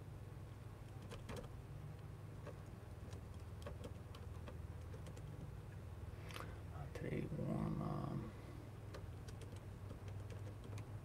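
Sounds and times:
low steady hum: 0:00.0 - 0:11.0
laptop keys clicking: 0:00.9 - 0:01.5, 0:02.4 - 0:05.5, 0:08.9 - 0:11.0.

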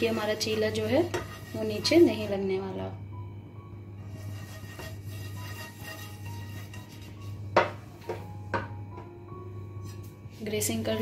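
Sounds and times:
brush spreading oil in pan: 0:00.0 - 0:02.5, 0:04.0 - 0:07.7
kitchenware knocking: 0:07.6 - 0:09.2.

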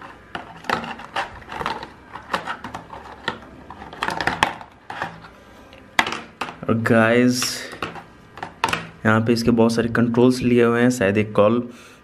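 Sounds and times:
plastic tray clicking and crackling: 0:00.3 - 0:05.3, 0:07.4 - 0:08.9.

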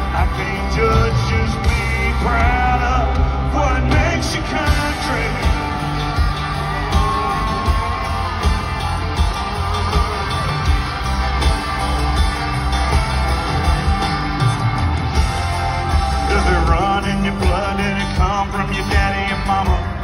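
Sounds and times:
electric guitar: 0:00.0 - 0:20.0
live country-rock band: 0:00.0 - 0:20.0
person whooping and yelling: 0:05.3 - 0:10.9.

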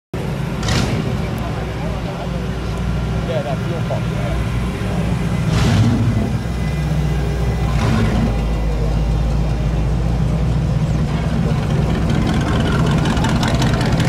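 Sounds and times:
car exhaust rumble: 0:00.2 - 0:14.0.

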